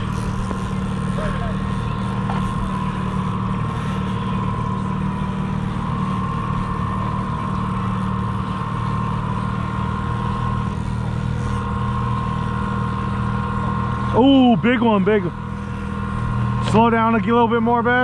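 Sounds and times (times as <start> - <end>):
boat motor humming: 0.0 - 18.0
high motor whine: 0.0 - 18.0.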